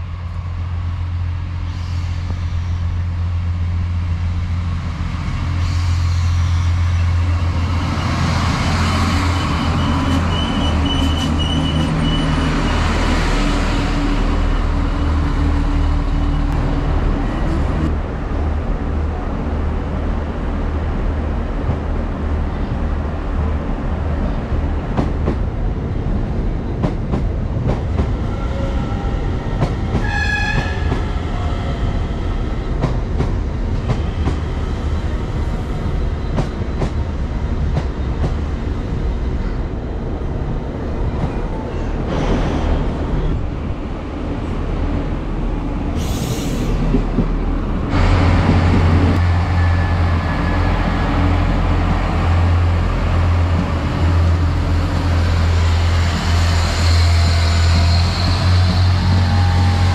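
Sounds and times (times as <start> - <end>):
diesel railcar engine hum: 0.0 - 59.9
electric train rumbling: 0.0 - 59.9
train horn tone: 30.0 - 31.0.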